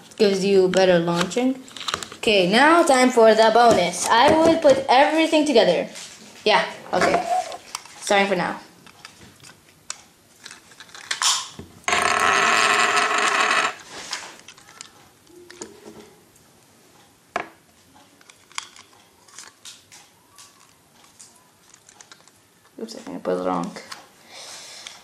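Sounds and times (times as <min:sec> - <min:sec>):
plastic clicks and rattles: 0:00.7 - 0:02.2, 0:08.9 - 0:11.6, 0:14.4 - 0:15.7, 0:18.2 - 0:22.8.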